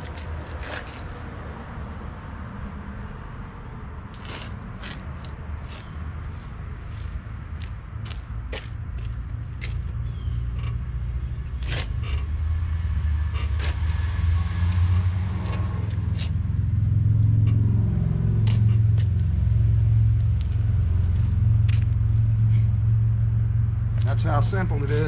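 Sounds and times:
low rumble: 7.0s - 25.0s.

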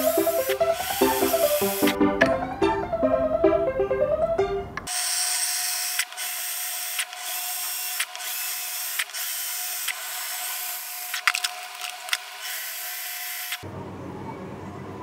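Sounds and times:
cordless drill whirring: 0.0s - 2.0s, 4.9s - 13.6s.

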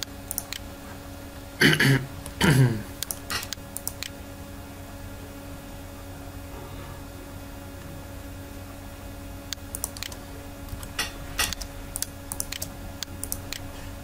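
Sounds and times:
steady low hum: 0.0s - 14.0s
keyboard key clicks: 9.6s - 13.7s.

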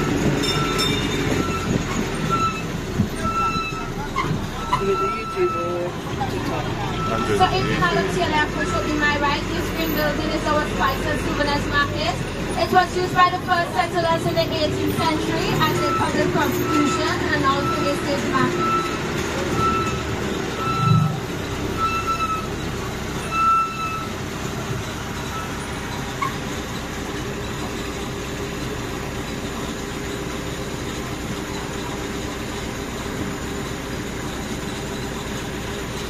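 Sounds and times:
vehicle engine running: 0.0s - 36.0s
short high electronic beeps: 19.6s - 21.2s.

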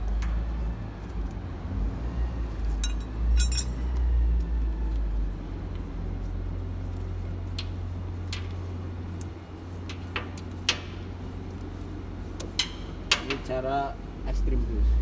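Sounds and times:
metal tools clinking: 2.7s - 3.8s.

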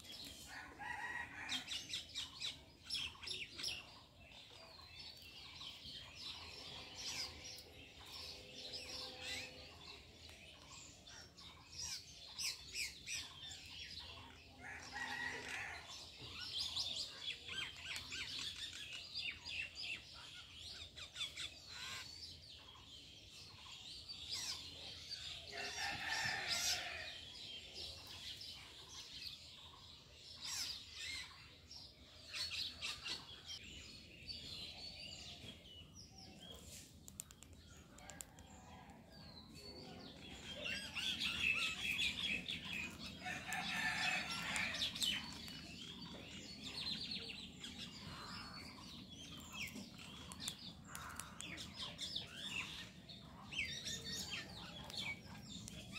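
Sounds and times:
birds chirping: 30.6s - 55.9s
rooster crowing: 43.2s - 45.0s.

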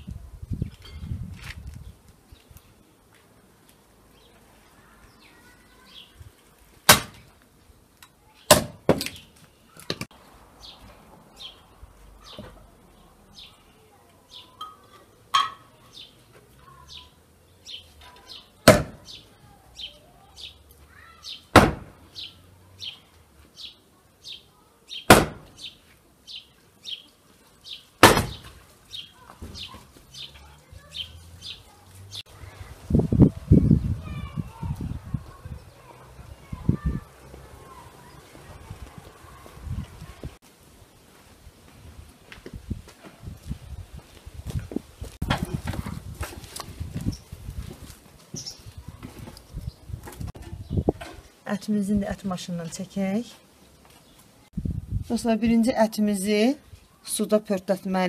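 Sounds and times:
firewood logs knocked together: 6.8s - 7.3s, 8.5s - 9.2s, 18.6s - 19.0s, 21.5s - 22.0s, 25.1s - 25.6s, 28.0s - 28.6s
bird chirping: 10.6s - 32.7s.

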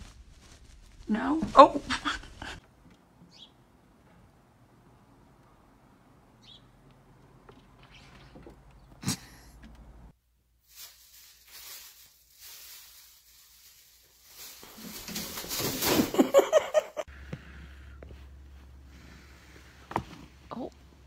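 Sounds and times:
plastic bag crinkling: 0.0s - 2.5s, 10.6s - 16.3s.

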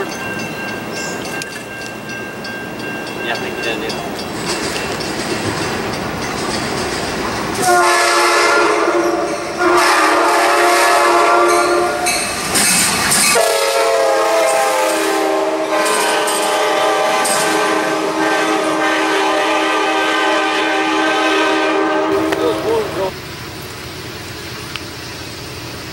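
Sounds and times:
train rumbling and clattering on rails: 0.0s - 25.9s
locomotive air horn blasts: 7.6s - 12.1s, 13.3s - 23.1s.

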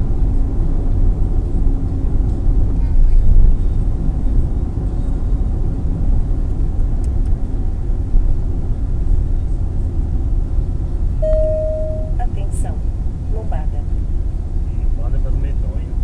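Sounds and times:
road and engine rumble in cabin: 0.0s - 16.0s
short steady beep: 11.2s - 12.4s.

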